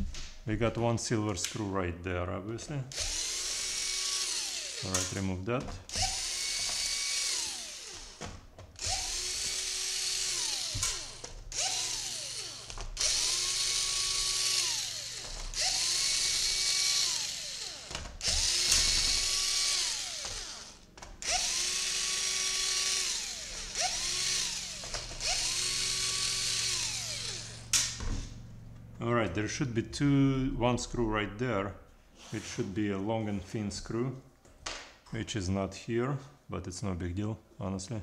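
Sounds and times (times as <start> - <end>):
powered screwdriver whine: 2.9 - 5.2, 5.9 - 28.4.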